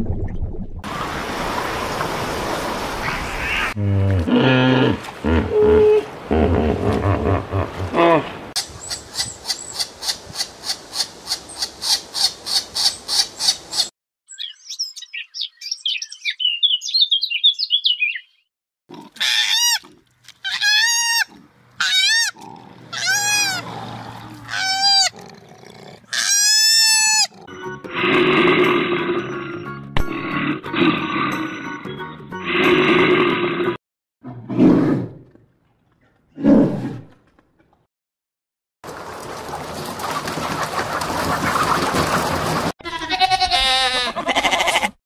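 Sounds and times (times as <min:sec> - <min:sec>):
rough animal grunting: 0:03.8 - 0:08.4, 0:22.3 - 0:26.2
high bird chirps: 0:11.5 - 0:18.5
animal calls rising and falling: 0:20.4 - 0:25.2, 0:26.1 - 0:27.4.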